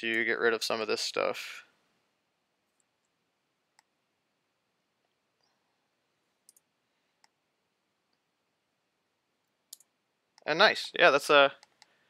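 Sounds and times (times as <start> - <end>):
computer mouse clicks: 6.4 - 7.4, 9.4 - 10.0, 11.6 - 12.0.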